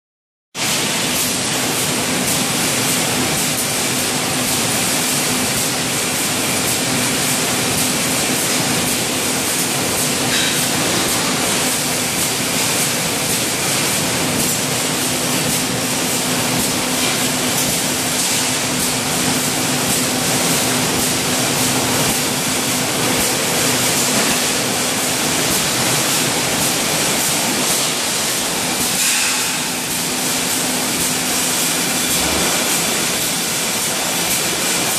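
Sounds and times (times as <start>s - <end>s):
loud machinery hiss: 8.2s - 34.9s.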